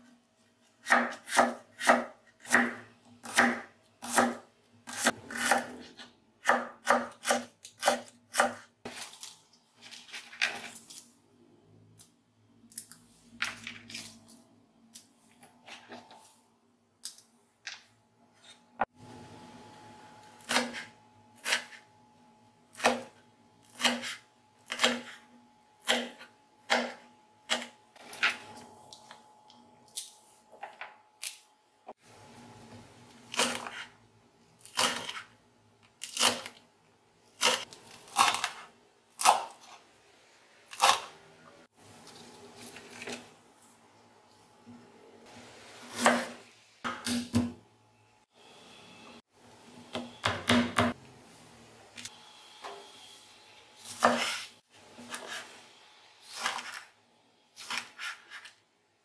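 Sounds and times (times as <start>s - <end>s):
knife chopping on wooden board: 0.8s - 9.0s, 53.9s - 55.4s.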